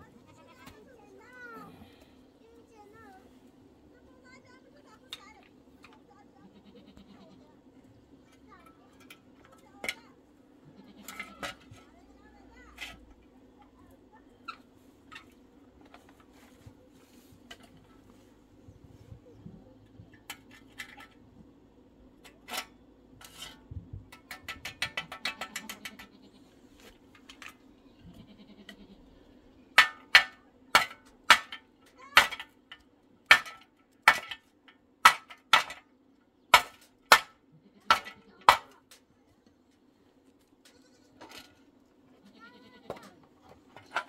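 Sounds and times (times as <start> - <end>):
goat bleating: 6.4 - 7.5, 10.6 - 11.4, 25.3 - 26.5, 28.0 - 29.2, 37.5 - 38.4, 40.6 - 41.3, 42.2 - 43.2
hammer striking shovel blade: 29.8 - 31.6, 33.3 - 35.8, 36.5 - 37.3, 37.9 - 38.8.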